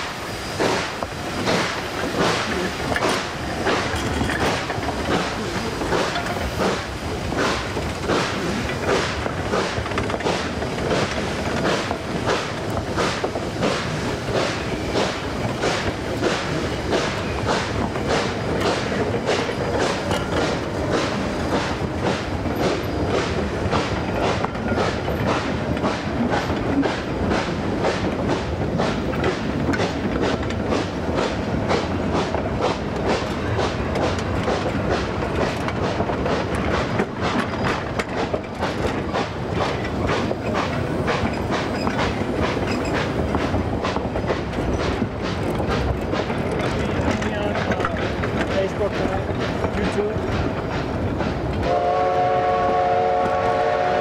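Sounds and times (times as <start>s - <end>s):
train wheels clicking over rail joints: 0.0s - 54.0s.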